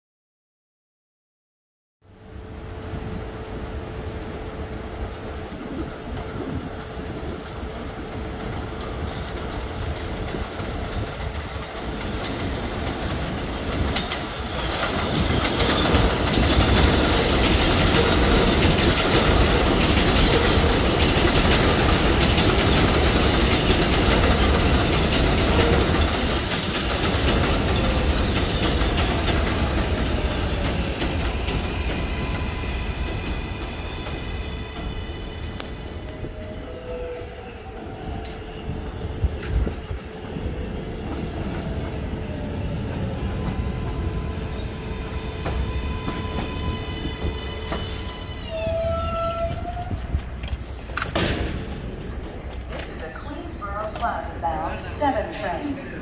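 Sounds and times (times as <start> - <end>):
train wheels clattering over rail joints: 7.4 - 36.2, 43.0 - 54.2
train motor whine: 41.0 - 52.9.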